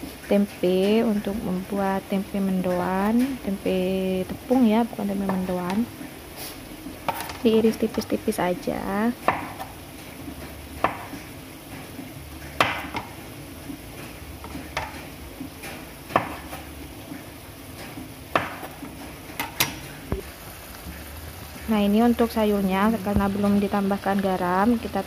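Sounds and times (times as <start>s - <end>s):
knife knocking on cutting board: 12.6s - 13.1s.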